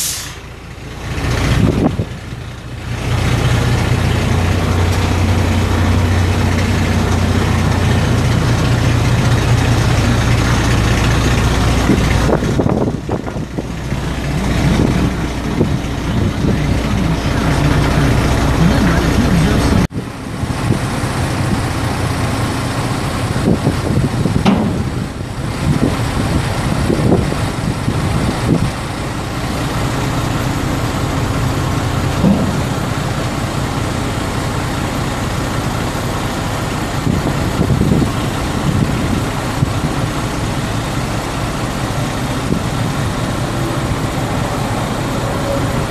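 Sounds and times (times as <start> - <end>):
truck diesel engine idling: 0.0 - 45.9
hydraulic hoist lowering dump bed: 20.5 - 45.9.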